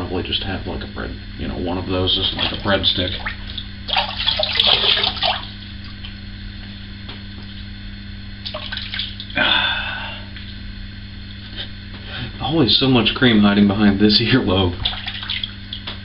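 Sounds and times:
steady low hum: 0.0s - 16.0s
water splashing in sink: 2.2s - 6.2s, 8.4s - 9.4s, 14.7s - 16.0s.

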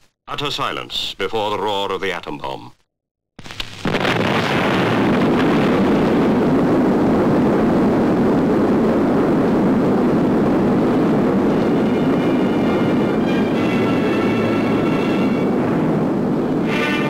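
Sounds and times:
explosion roar: 3.8s - 17.0s.

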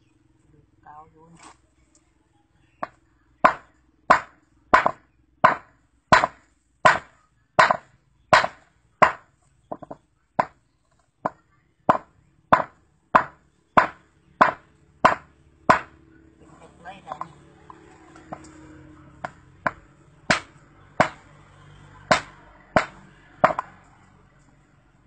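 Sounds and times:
hammer striking stone: 2.8s - 10.6s, 11.3s - 16.0s, 19.2s - 21.2s, 22.1s - 23.7s.

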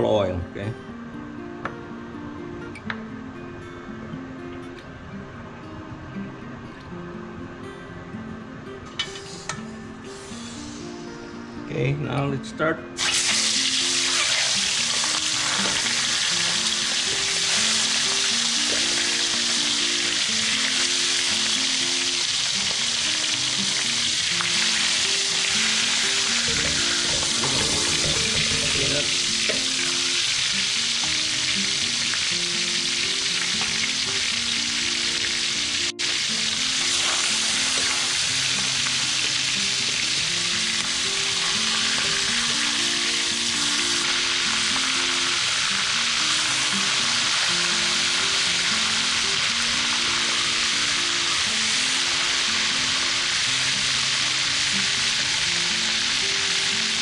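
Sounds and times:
quiet background music: 0.0s - 57.0s
squid frying in oil: 13.0s - 57.0s.

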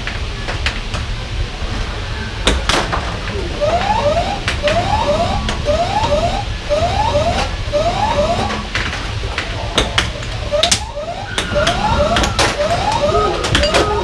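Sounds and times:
electronic rising chirps: 3.6s - 8.7s, 10.4s - 14.0s
air hockey puck clacking: 8.4s - 14.0s.

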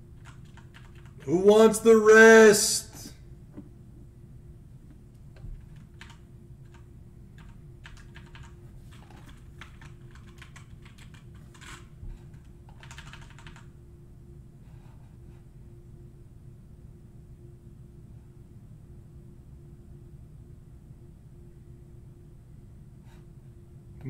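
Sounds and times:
faint steady hum: 0.0s - 24.0s
keyboard typing: 0.2s - 1.3s, 5.6s - 13.7s.

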